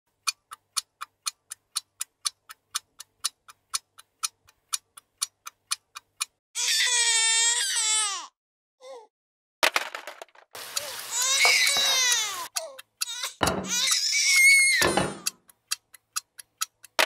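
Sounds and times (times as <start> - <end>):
clock ticking: 0.1 - 6.4, 12.0 - 17.0
baby crying: 6.6 - 9.1, 10.8 - 15.3.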